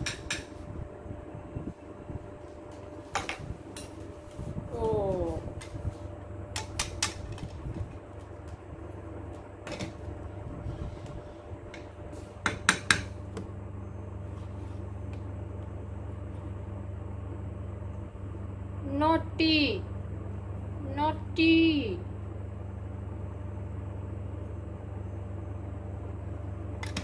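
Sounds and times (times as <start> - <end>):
low fan hum: 0.0 - 27.0.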